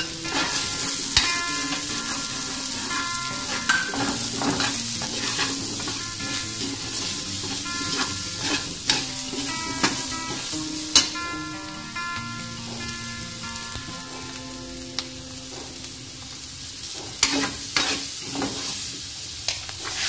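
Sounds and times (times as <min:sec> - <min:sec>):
vegetables sizzling in a wok: 0:00.0 - 0:20.0
metal spatula scraping and clacking: 0:00.2 - 0:02.2, 0:03.5 - 0:10.4, 0:17.2 - 0:18.7.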